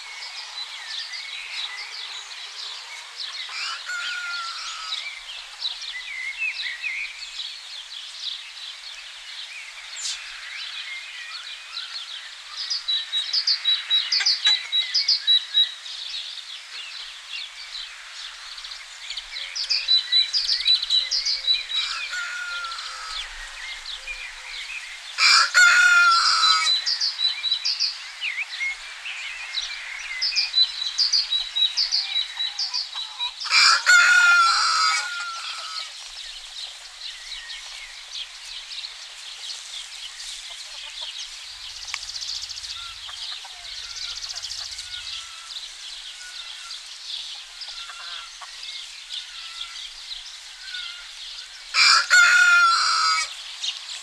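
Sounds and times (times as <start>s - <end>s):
small birds chirping: 0.0s - 54.0s
rooster crowing: 3.4s - 5.2s, 21.2s - 23.6s, 25.2s - 26.8s, 33.4s - 35.9s, 51.7s - 53.3s.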